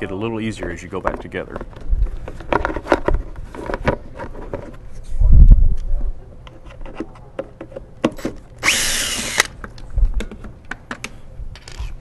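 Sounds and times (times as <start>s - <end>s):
cordless drill spinning: 8.6s - 9.6s.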